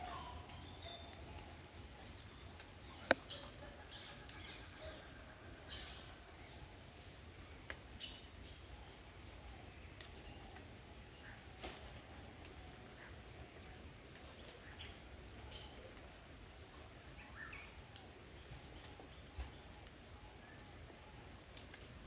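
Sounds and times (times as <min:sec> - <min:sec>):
insects droning: 0:00.0 - 0:22.0.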